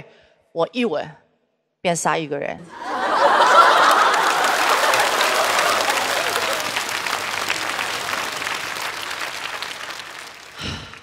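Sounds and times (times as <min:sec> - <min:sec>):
studio audience applauding: 0:02.7 - 0:11.0.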